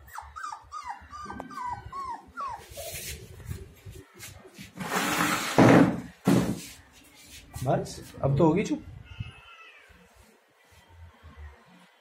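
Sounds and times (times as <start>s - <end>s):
puppy whining: 0.0s - 3.5s.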